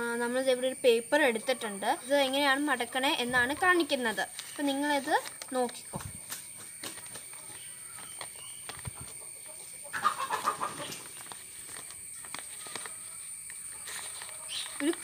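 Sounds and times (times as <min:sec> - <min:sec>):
newspaper rustling and clicks: 0:04.3 - 0:09.0, 0:11.0 - 0:15.0
chicken clucking: 0:06.2 - 0:11.2.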